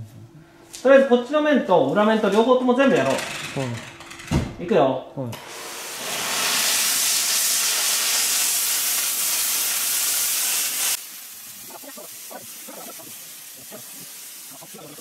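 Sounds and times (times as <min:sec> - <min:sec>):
steam cleaner hissing: 0:05.4 - 0:15.0.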